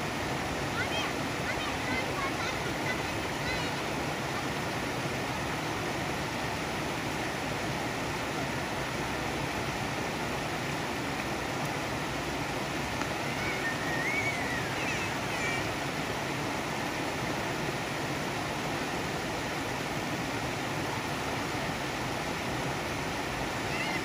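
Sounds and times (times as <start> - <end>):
water splashing into stream: 0.0 - 24.0
faint high wavering chirps: 13.2 - 15.6.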